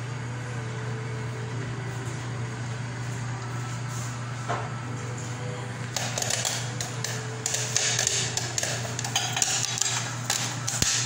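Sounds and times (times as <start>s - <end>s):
steady low hum: 0.0s - 11.0s
popcorn popping in a pan: 5.9s - 11.0s.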